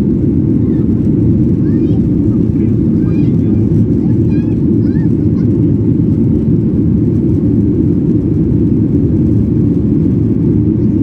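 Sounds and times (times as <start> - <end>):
jet engines rumbling in cabin: 0.0 - 11.0.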